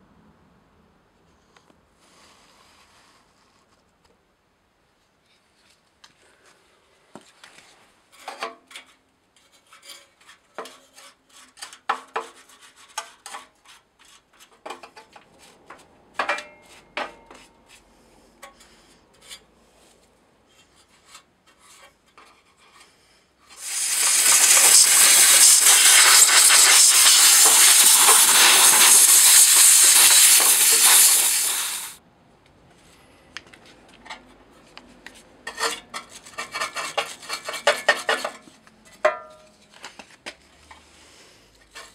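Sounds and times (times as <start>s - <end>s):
loud steady hiss: 23.6s - 32.0s
scraping on metal: 35.5s - 39.0s.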